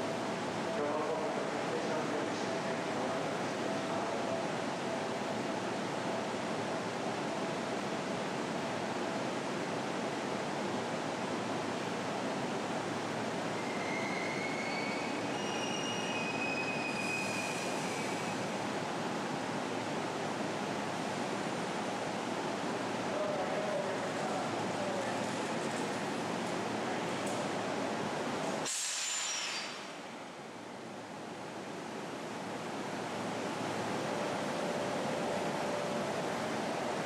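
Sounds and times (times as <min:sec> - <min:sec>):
train brakes squealing: 0:13.5 - 0:18.5, 0:28.6 - 0:29.9
short hiss: 0:28.6 - 0:30.0.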